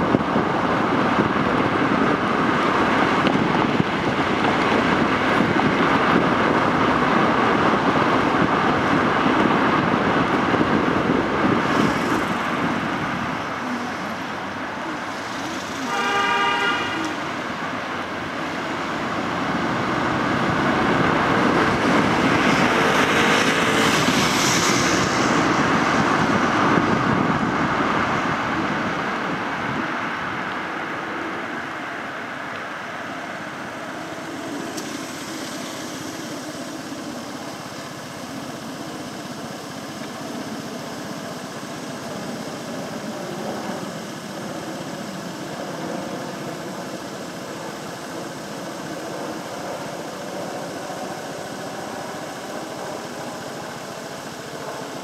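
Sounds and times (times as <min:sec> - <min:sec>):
road and traffic noise: 0:00.0 - 0:55.0
vehicle horn: 0:15.6 - 0:17.4.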